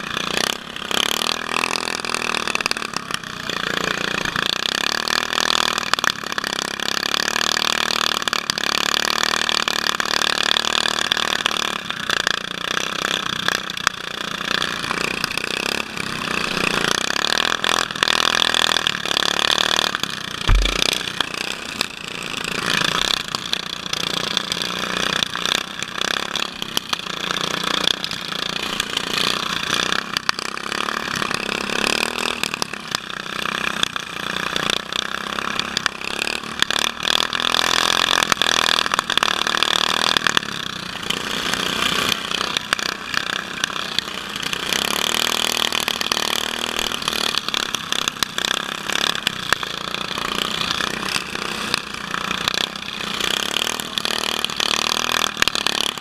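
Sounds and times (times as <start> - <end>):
riding mower engines: 0.0 - 56.0
sharp knocks and rattles: 20.4 - 21.1.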